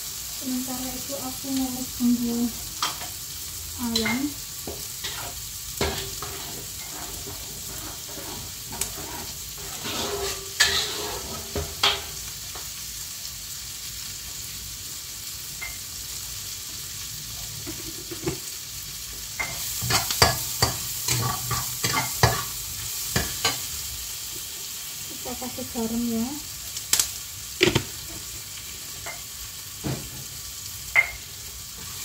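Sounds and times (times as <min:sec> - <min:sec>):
spices sizzling in hot oil: 0:00.0 - 0:32.0
spatula scraping a pan: 0:03.9 - 0:12.2, 0:19.4 - 0:23.7.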